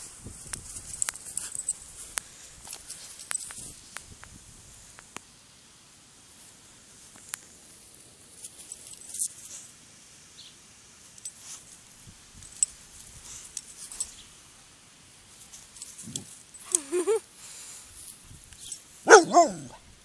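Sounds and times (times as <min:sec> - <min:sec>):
small clicks and clinks: 0:00.5 - 0:03.7, 0:08.4 - 0:09.5, 0:11.1 - 0:11.8, 0:12.4 - 0:14.2, 0:15.3 - 0:17.1, 0:18.0 - 0:18.9.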